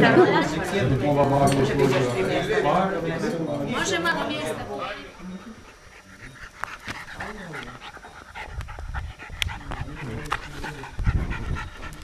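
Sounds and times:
dog panting: 0:05.5 - 0:12.0.

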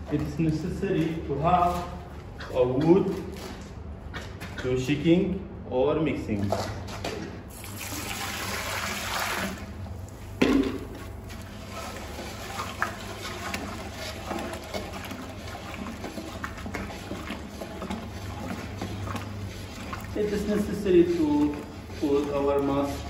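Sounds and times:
water pouring into a pot: 0:07.5 - 0:09.8, 0:11.4 - 0:23.0
stick stirring in a steel pot: 0:11.0 - 0:23.0.

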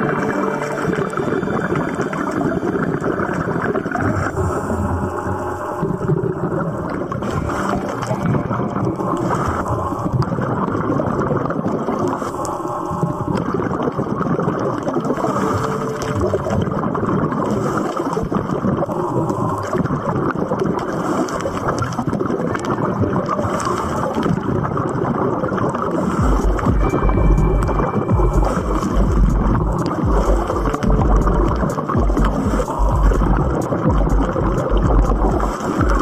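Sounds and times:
muffled underwater rush and gurgling: 0:00.0 - 0:36.0
deep rumble: 0:26.2 - 0:36.0.

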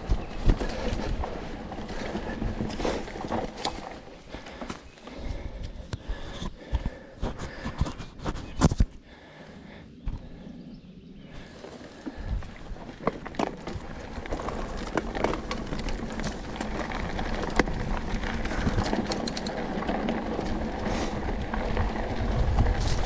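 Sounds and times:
wind rumble on microphone: 0:00.0 - 0:03.7, 0:10.0 - 0:23.0
tyres crunching over dirt and stones: 0:00.0 - 0:07.9, 0:11.4 - 0:23.0
bike clicks and rattles: 0:00.0 - 0:09.0, 0:11.5 - 0:23.0.

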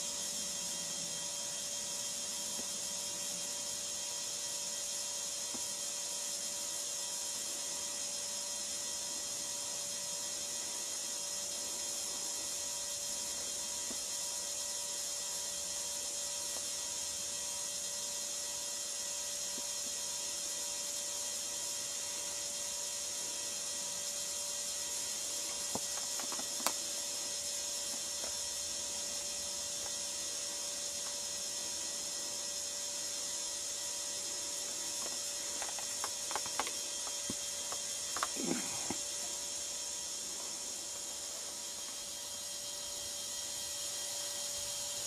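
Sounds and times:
camcorder hiss: 0:00.0 - 0:45.0
faint hum: 0:21.3 - 0:45.0.

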